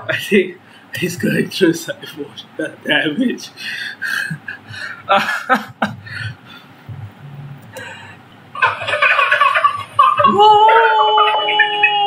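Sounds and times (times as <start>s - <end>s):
man giggling: 4.0s - 6.6s, 9.6s - 12.0s
baby laughing and squealing: 8.6s - 12.0s.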